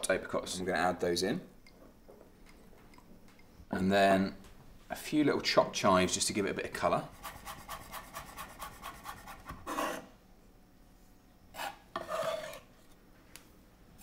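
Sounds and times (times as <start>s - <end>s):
knife blade scraping board: 7.2s - 10.1s, 11.5s - 12.7s.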